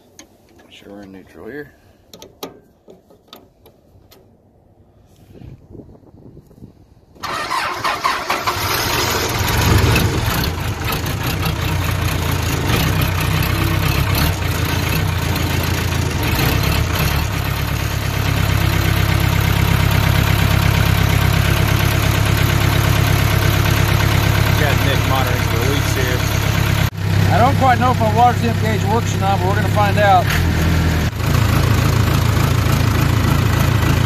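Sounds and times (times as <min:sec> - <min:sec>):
diesel engine starting and idling: 0:07.2 - 0:34.0.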